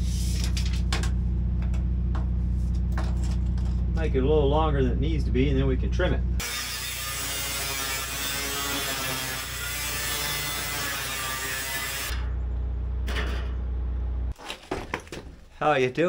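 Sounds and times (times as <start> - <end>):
angle grinder cutting sheet steel: 6.4 - 12.3
grinder motor running: 6.4 - 12.4.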